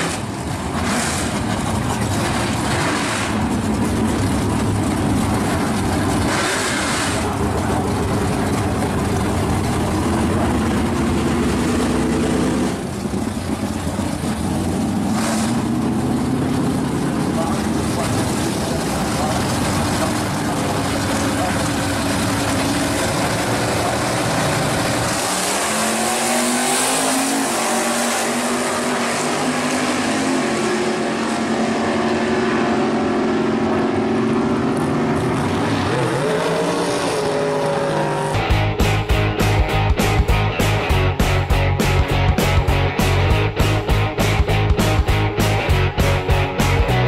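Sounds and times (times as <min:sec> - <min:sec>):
drag car engines accelerating: 0:00.0 - 0:47.0
rock music with guitar: 0:38.3 - 0:47.0.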